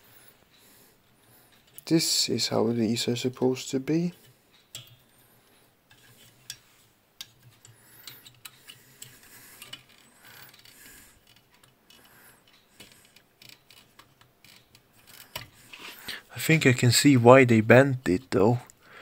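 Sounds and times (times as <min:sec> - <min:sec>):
small metal parts clicking and scraping: 0:01.4 - 0:02.2, 0:03.2 - 0:16.1.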